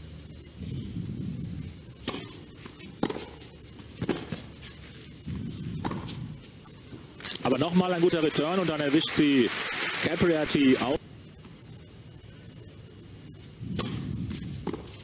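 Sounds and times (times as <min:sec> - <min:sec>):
low background noise: 0:00.0 - 0:15.0
tennis ball hit by racket: 0:02.0 - 0:03.4, 0:04.0 - 0:04.4, 0:05.8 - 0:06.2, 0:13.7 - 0:15.0.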